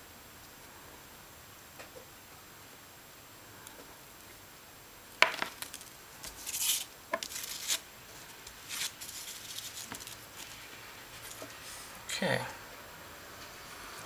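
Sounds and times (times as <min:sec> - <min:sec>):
aluminium foil crinkling: 0:05.3 - 0:11.5.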